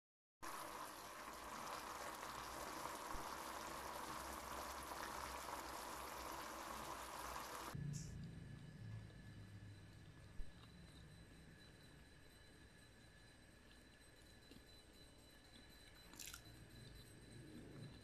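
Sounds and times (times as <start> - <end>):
sauce bubbling and sizzling in pan: 0.4 - 7.8.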